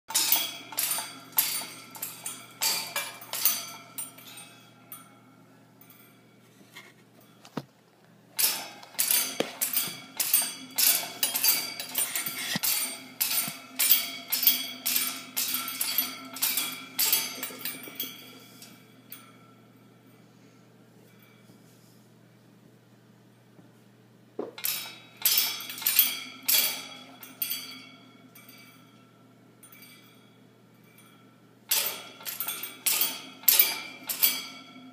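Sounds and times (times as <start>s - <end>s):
parrot clinking metal cage: 0.1s - 5.2s, 8.4s - 19.5s, 24.6s - 29.0s, 29.6s - 34.9s.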